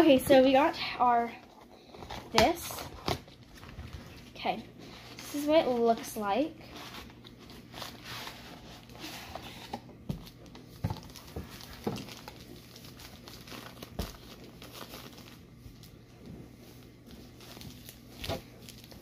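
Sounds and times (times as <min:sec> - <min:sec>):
plastic bag crinkling: 0:10.4 - 0:16.0, 0:17.0 - 0:19.0.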